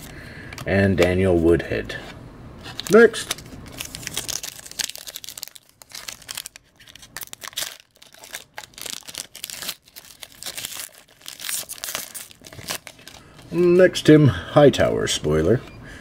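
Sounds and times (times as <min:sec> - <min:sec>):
foil wrapper crinkling and tearing: 0:02.7 - 0:13.5.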